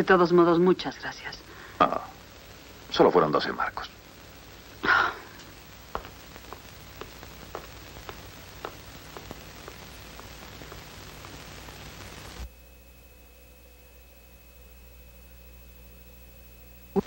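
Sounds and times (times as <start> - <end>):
film soundtrack hiss: 0.0 - 17.0
faint high steady tone: 10.1 - 17.0.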